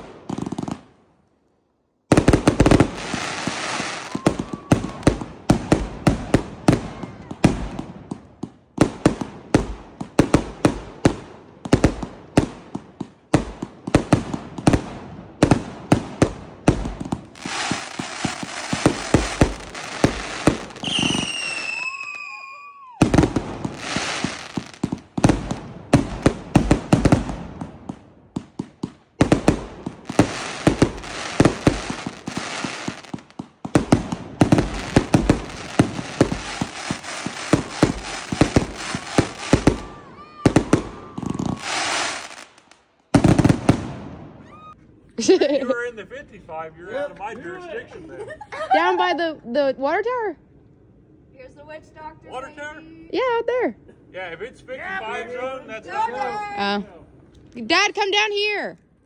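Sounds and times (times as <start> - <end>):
firework bangs with crackle: 0.0 - 0.9, 2.1 - 44.8
falling firework whistle: 3.4 - 5.1, 17.4 - 24.7, 34.9 - 42.5, 43.7 - 44.8.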